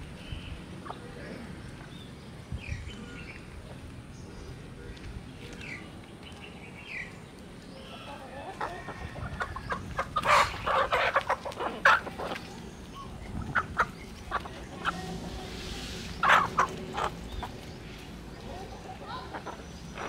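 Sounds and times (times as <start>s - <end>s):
chickens clucking: 0.7s - 2.0s, 7.8s - 20.0s.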